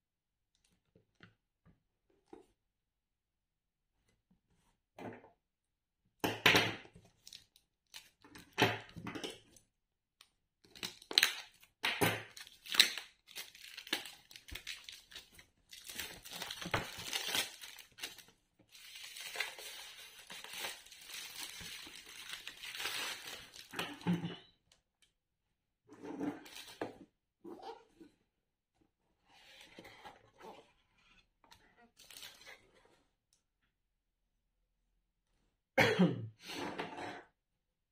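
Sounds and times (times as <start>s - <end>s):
plastic wrap crinkling and tearing: 10.7s - 11.7s, 12.3s - 24.0s, 32.0s - 32.5s.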